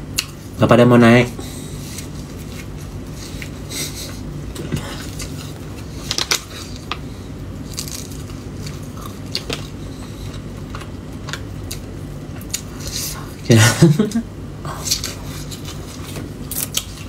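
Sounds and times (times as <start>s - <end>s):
steady low hum: 0.0s - 17.0s
person chewing crispy snacks: 4.5s - 13.5s, 14.7s - 17.0s
crisp clicks and crackles: 6.0s - 12.7s.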